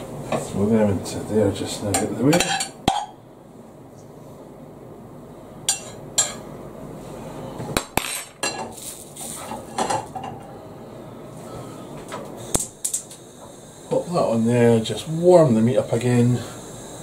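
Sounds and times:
low background noise: 0:00.0 - 0:17.0
utensils clinking on dishes: 0:05.7 - 0:06.4.

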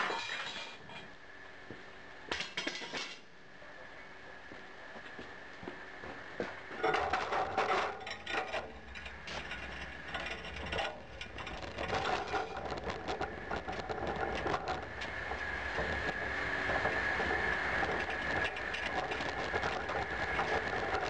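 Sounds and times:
metal frame clanking and rattling: 0:06.8 - 0:14.8.

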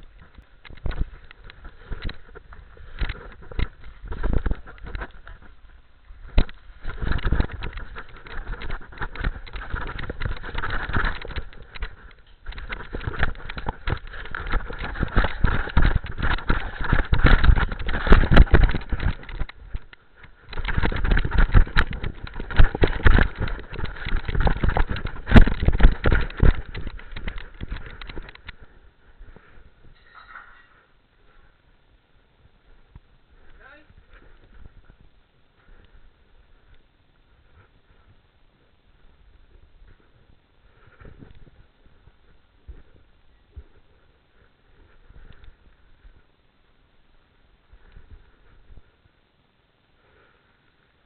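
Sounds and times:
camera rubbing and knocking on collar: 0:00.2 - 0:05.6, 0:06.3 - 0:30.8.

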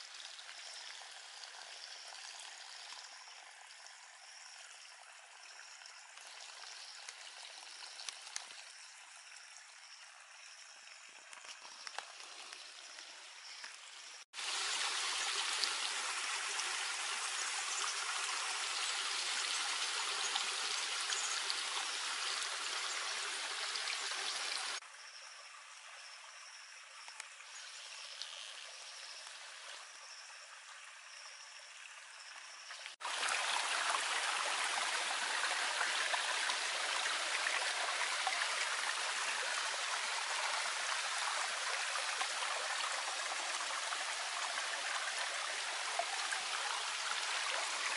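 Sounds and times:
water running and trickling: 0:00.0 - 0:24.8, 0:25.8 - 0:47.9.

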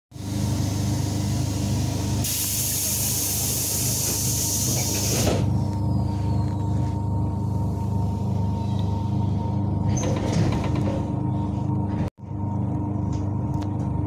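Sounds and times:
train carriage hum: 0:00.2 - 0:14.0
compressed air hiss: 0:02.2 - 0:05.3.

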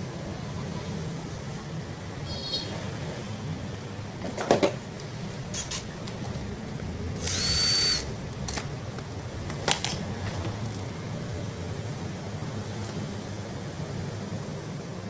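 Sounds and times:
steady low hum: 0:00.0 - 0:15.0
handling clicks and knocks: 0:04.2 - 0:06.5, 0:08.4 - 0:10.9.

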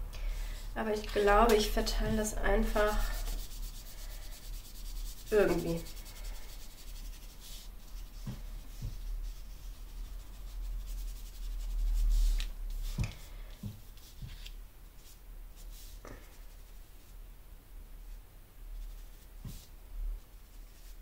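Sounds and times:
foam tool rubbing on paper: 0:02.6 - 0:13.0.

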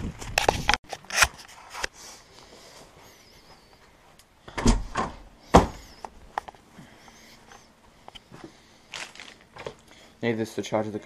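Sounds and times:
clicks and rustles of handled objects: 0:08.9 - 0:09.9.

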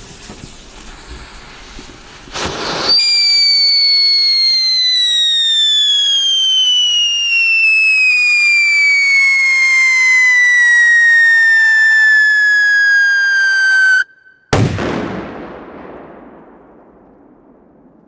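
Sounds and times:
firecracker bang: 0:00.0 - 0:05.0, 0:13.5 - 0:18.0
firecracker shrill whistle: 0:02.4 - 0:14.6.

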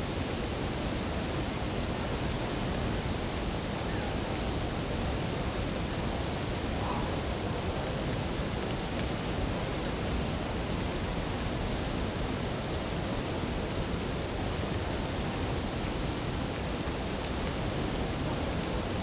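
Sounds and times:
waterfall rushing: 0:00.0 - 0:10.6.

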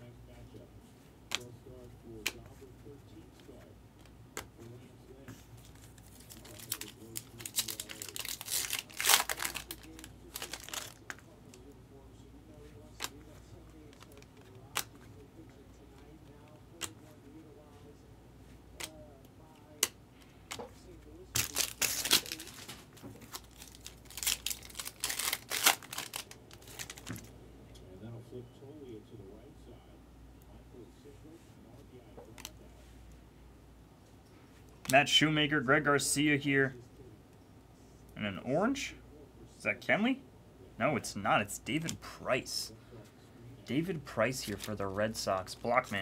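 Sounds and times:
foil wrapper crinkling and tearing: 0:05.7 - 0:11.6, 0:21.3 - 0:27.3.

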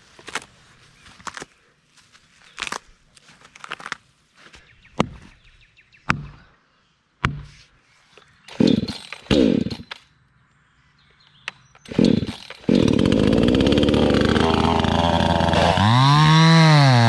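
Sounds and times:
chainsaw being pull-started: 0:08.5 - 0:10.0, 0:11.9 - 0:17.0.

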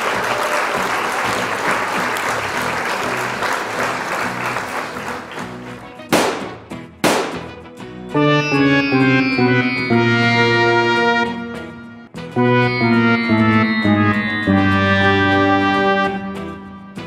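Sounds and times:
crowd applause: 0:00.0 - 0:06.0
background music: 0:02.4 - 0:17.0
brass music: 0:08.1 - 0:17.0.

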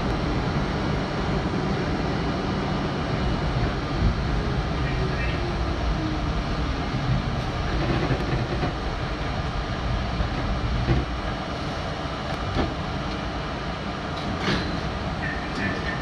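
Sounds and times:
subway wheels rumbling on rails: 0:00.0 - 0:16.0
clacks over rail joints: 0:07.0 - 0:09.6, 0:10.2 - 0:11.4, 0:12.2 - 0:13.3, 0:14.1 - 0:16.0.

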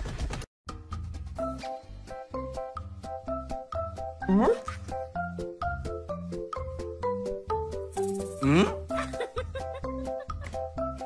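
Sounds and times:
bouncy background music: 0:00.7 - 0:11.0.

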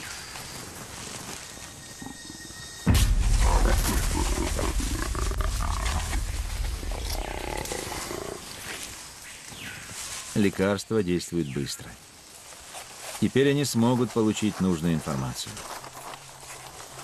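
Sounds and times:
jaguar growling: 0:03.4 - 0:08.8.

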